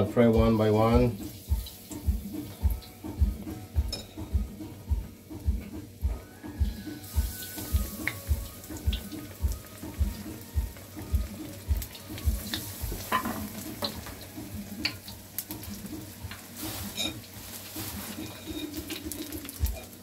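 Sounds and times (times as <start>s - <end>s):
background music with beat: 0.0s - 20.0s
fritters sizzling in hot oil: 0.0s - 20.0s
oil popping and clicking: 18.8s - 19.9s.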